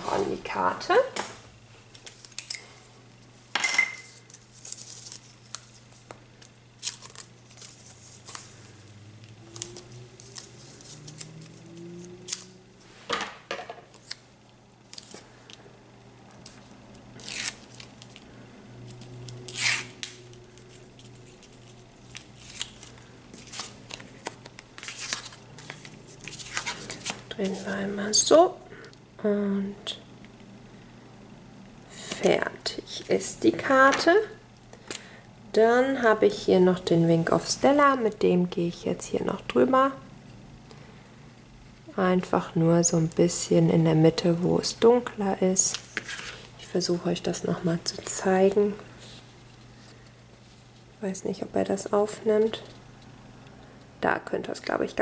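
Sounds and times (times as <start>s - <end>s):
paper rustling: 4.2s - 6.2s, 6.8s - 8.8s, 20.4s - 27.7s
tape tearing: 6.8s - 8.4s, 9.5s - 12.6s, 13.9s - 15.2s, 16.4s - 18.2s, 18.9s - 27.3s.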